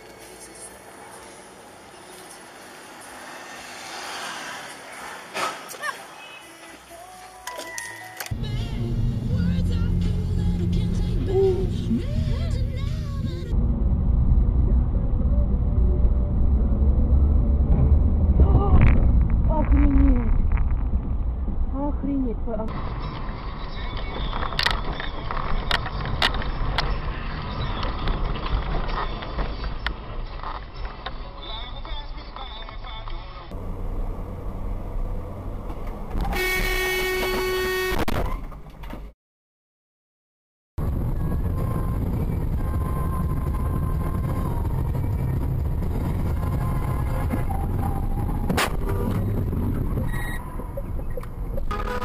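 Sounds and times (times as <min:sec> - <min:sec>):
car road and engine noise: 0:00.0 - 0:39.2, 0:40.8 - 0:52.0.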